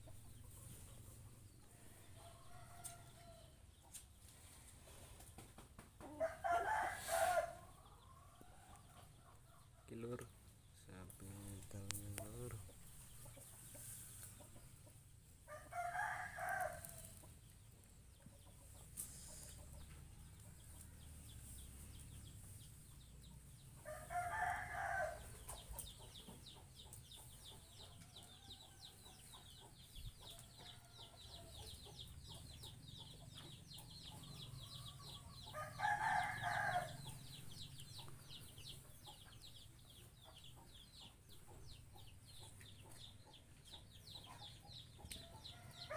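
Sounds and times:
rooster crowing: 0:06.2 - 0:07.6, 0:23.9 - 0:25.2, 0:35.5 - 0:37.0.

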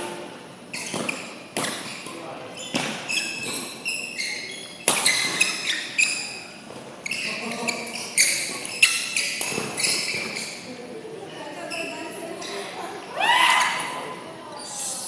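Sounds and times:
shoes squeaking on court: 0:00.6 - 0:10.8, 0:11.4 - 0:12.8, 0:13.6 - 0:15.0
racket hitting shuttlecock: 0:04.8 - 0:05.6.

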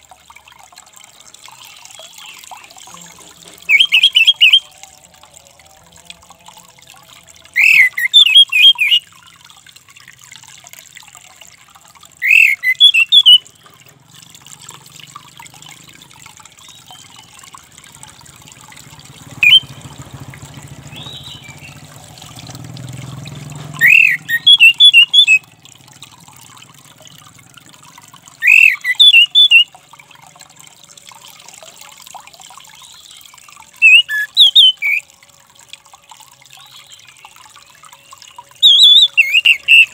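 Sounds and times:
thrush calling: 0:02.0 - 0:04.8, 0:07.5 - 0:09.1, 0:12.2 - 0:13.5, 0:19.1 - 0:22.5, 0:23.7 - 0:25.6, 0:28.3 - 0:29.8, 0:33.8 - 0:35.0, 0:38.6 - 0:39.9.

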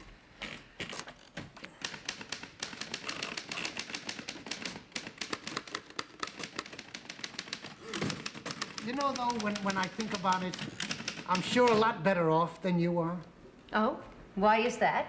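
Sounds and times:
typewriter keys clacking: 0:00.4 - 0:11.9.

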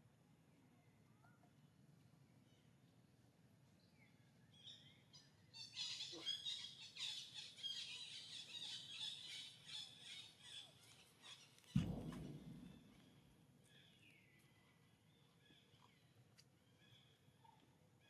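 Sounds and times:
loud low thump: 0:11.8 - 0:13.4.

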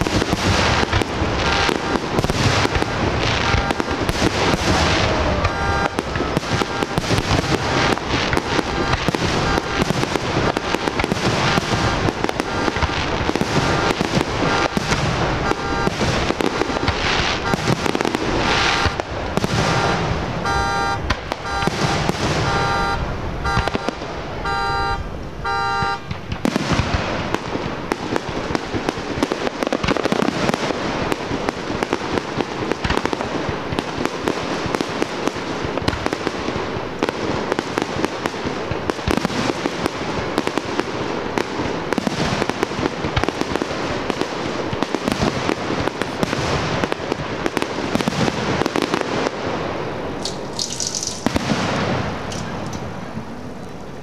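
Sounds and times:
fireworks bangs and crackling: 0:00.0 - 0:54.0
rapid beeping tone: 0:19.7 - 0:26.0.

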